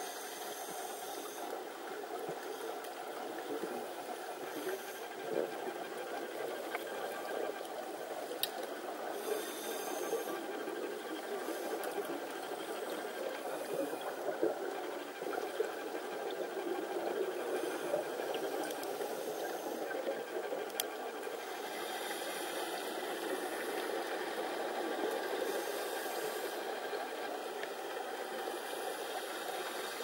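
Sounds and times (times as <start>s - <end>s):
scuba diver breathing underwater: 9.0s - 14.4s.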